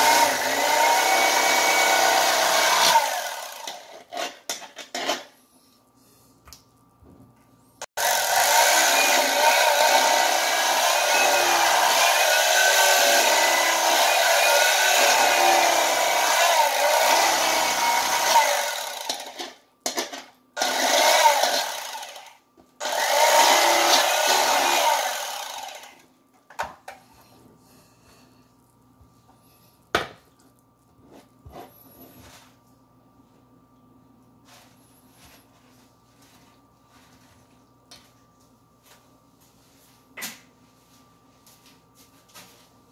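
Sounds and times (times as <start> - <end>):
electric knife motor whine: 8.0 - 19.3, 20.6 - 26.0.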